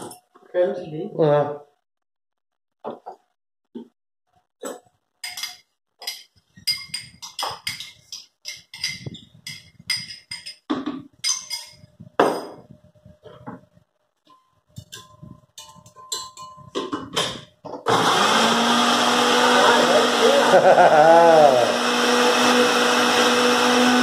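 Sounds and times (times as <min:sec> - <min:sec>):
metal spoon clinking on glass: 0:05.2 - 0:12.4, 0:14.3 - 0:17.0.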